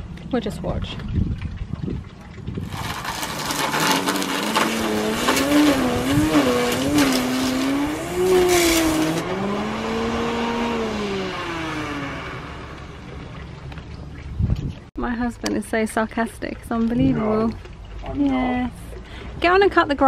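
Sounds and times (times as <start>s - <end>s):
string trimmer motor whine: 2.8s - 13.3s
trimmer line hissing through grass: 3.5s - 9.2s.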